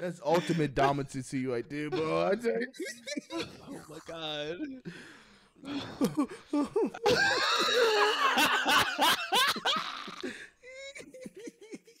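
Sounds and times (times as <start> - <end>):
people laughing: 1.9 - 4.9, 5.7 - 12.0.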